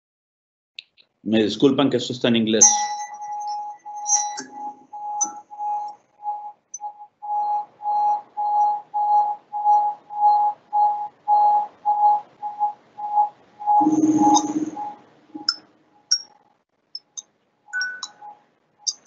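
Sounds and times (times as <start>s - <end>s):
pulsing high electronic tone: 13.7s - 15.6s.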